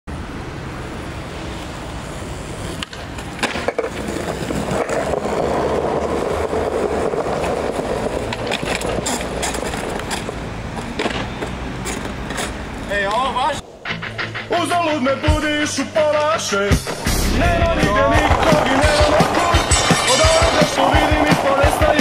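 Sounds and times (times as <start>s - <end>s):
skateboard wheels rumbling on stone: 0.9s - 13.8s, 15.4s - 22.0s
skateboard clacking on ground: 2.1s - 14.9s, 17.8s - 22.0s.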